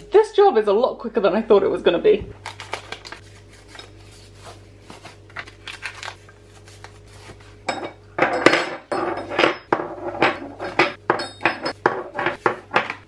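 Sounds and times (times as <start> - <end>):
plastic packaging rustling: 2.4 - 7.6
metal handles clinking: 7.7 - 13.0.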